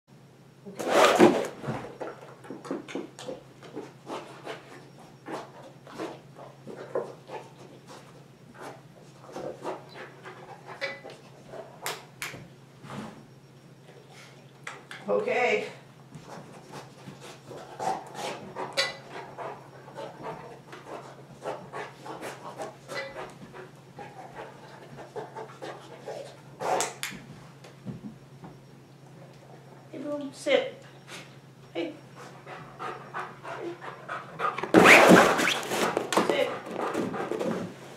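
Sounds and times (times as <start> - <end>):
dog panting: 3.8 - 11.8, 16.2 - 27.0, 32.1 - 34.8, 36.4 - 37.7
rustling burst: 34.7 - 36.1.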